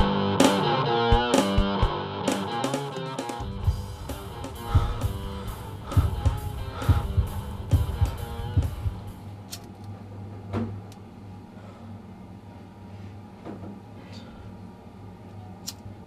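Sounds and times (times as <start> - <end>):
guitar over drum beat: 0.0 - 9.3
low hum: 3.4 - 15.6.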